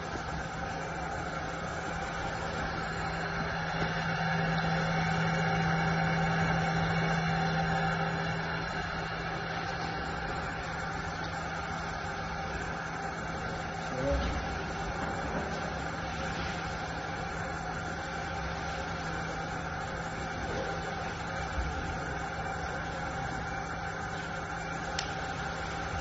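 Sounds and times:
fan humming: 0.0 - 26.0.

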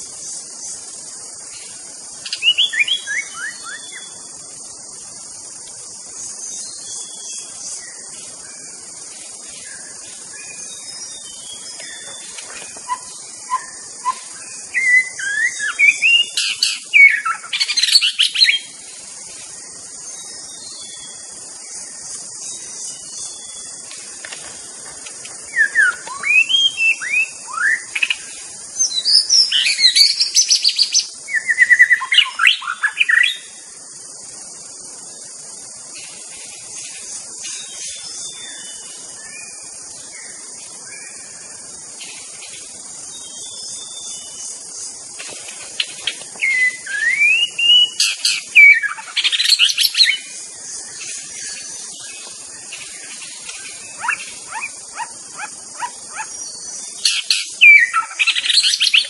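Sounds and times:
steady high hiss: 0.0 - 59.0
bird singing whistled phrases: 2.3 - 4.2, 12.8 - 18.6, 25.6 - 28.2, 28.8 - 33.4, 46.4 - 50.2, 57.1 - 59.0.

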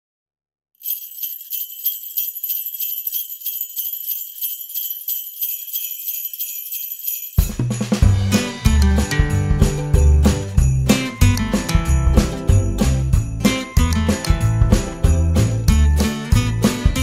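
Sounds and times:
sleigh bells shaken: 0.8 - 17.0
song with bass and melody: 7.6 - 17.0.

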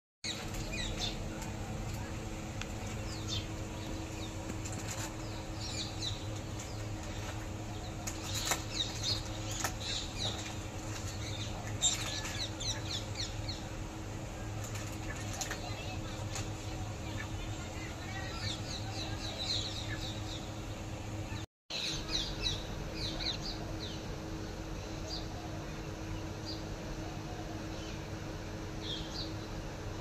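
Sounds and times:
small birds chirping: 0.2 - 20.6, 28.8 - 29.6.

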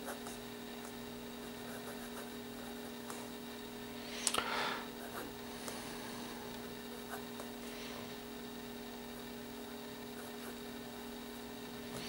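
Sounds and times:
electrical hum: 0.0 - 12.0
pen nib scratching paper: 1.6 - 2.4.

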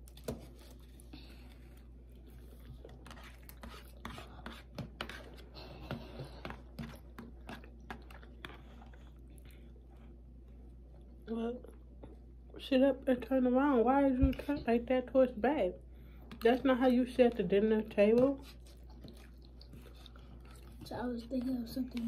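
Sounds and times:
low steady hum: 0.0 - 22.0
chewing: 6.6 - 12.2, 18.4 - 22.0.

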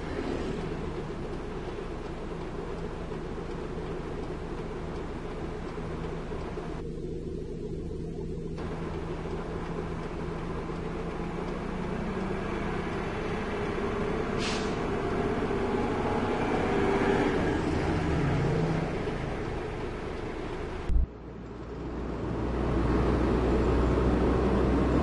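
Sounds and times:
heavy truck engine rumbling past: 0.0 - 25.0
road and engine noise: 0.0 - 25.0
short hiss: 14.4 - 14.8.

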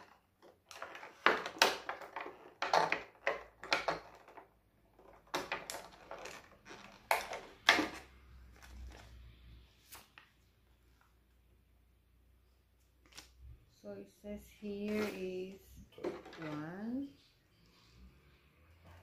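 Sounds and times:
plastic parts knocks and clicks: 0.0 - 8.7.

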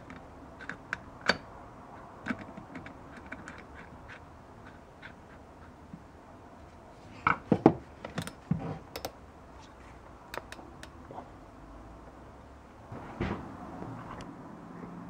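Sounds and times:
metal tool parts clicking and knocking: 2.2 - 3.9.

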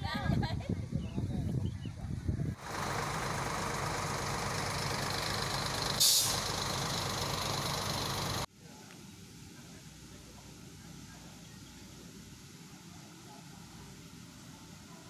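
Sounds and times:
vehicle engine idling: 2.6 - 8.5
short loud hiss: 6.0 - 6.5.

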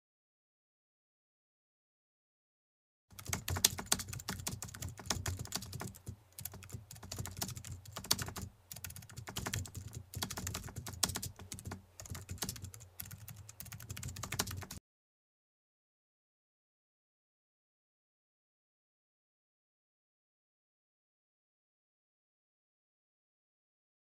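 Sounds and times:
keyboard typing clicks: 3.1 - 14.8.

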